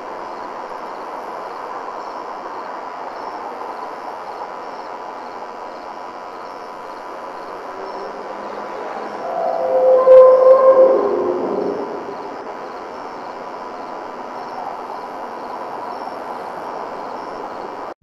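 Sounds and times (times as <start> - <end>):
faint hum: 0.0 - 18.0
steady rushing noise: 6.8 - 13.0
thin high tones: 7.8 - 12.5.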